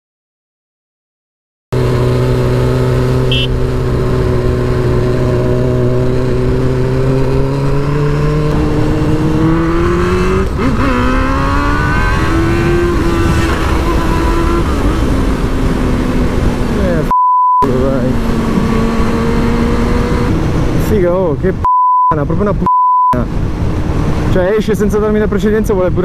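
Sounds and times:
motorcycle engine accelerating: 1.7s - 20.8s
wind rush on microphone: 3.6s - 17.0s, 18.1s - 21.6s, 23.2s - 26.0s.

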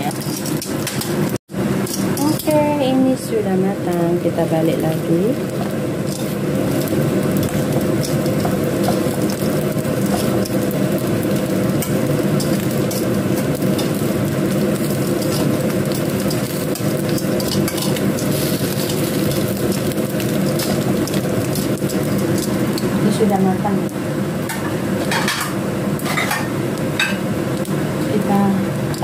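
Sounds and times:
food sizzling in oil: 0.0s - 29.0s
metal tongs ticking on pan: 14.8s - 18.2s.

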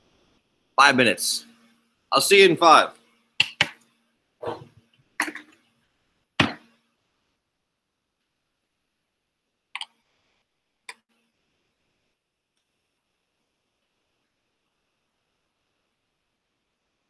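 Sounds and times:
objects knocking on lab bench: 5.2s - 5.6s, 6.4s - 6.7s.

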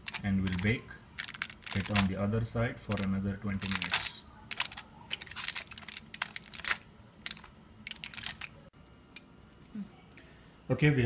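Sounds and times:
foil crinkling: 0.0s - 8.6s.

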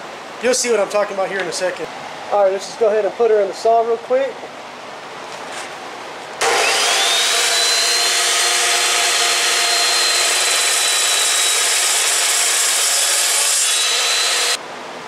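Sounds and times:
chop saw cutting metal: 6.4s - 14.6s.

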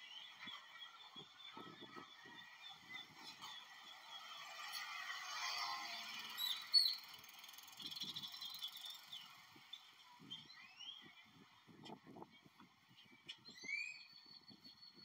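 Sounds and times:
birds chirping and whistling: 0.0s - 4.6s, 6.3s - 11.5s, 13.0s - 15.0s.

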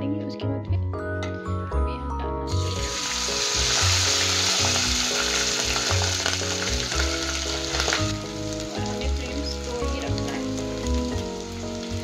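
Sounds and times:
background music: 0.0s - 12.0s
rice sizzling in hot fat: 2.5s - 12.0s.

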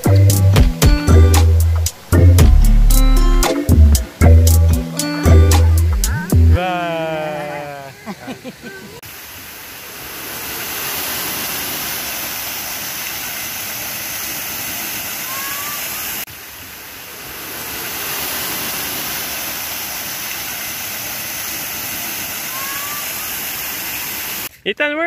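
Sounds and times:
water rushing from fountains: 6.6s - 24.5s.

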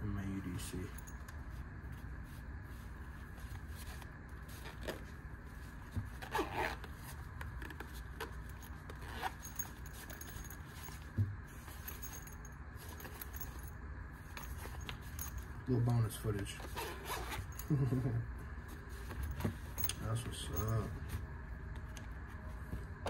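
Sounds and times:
handling rustles: 0.6s - 21.3s
zipper rasping pulls: 3.7s - 5.1s, 6.1s - 11.0s, 16.6s - 17.7s.

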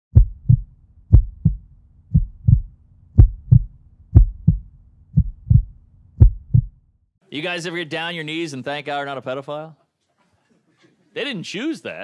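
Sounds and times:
heartbeat thumps: 0.1s - 6.8s.

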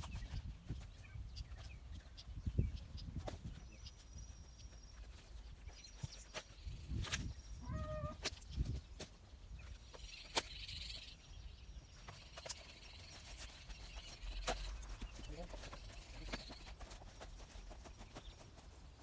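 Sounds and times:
footsteps in grass: 3.0s - 19.0s
short animal call: 7.6s - 8.2s.

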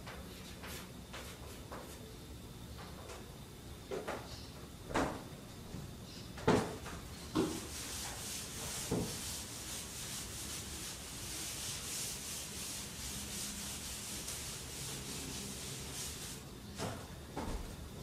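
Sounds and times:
eraser rubbing on chalkboard: 7.4s - 16.4s.

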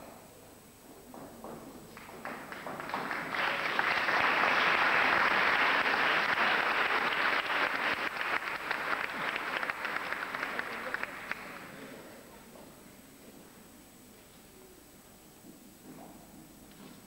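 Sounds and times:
audience applauding: 2.0s - 11.8s.

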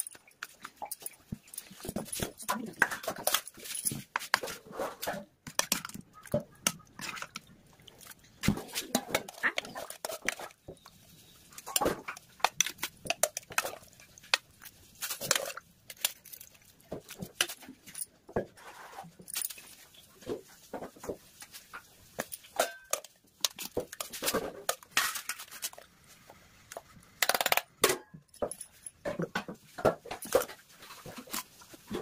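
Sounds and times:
metal utensils clinking and scraping: 0.0s - 20.6s, 21.4s - 25.9s.

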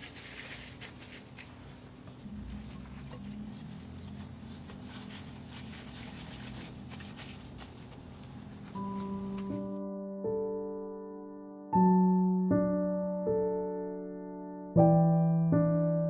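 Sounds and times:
plastic gloves squishing meat: 0.0s - 9.6s
low steady hum: 0.0s - 9.8s
electric piano chord: 8.8s - 16.0s.

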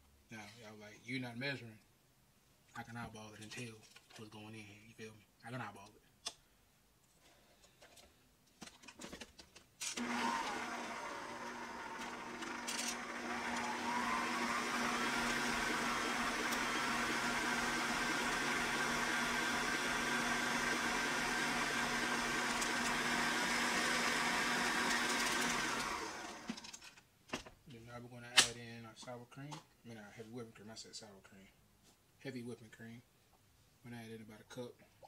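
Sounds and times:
stand mixer motor whine: 10.0s - 26.6s.

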